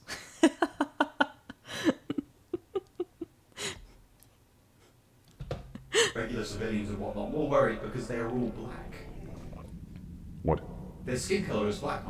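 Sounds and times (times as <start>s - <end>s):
woman laughing: 0.0s - 3.8s, 5.7s - 6.2s.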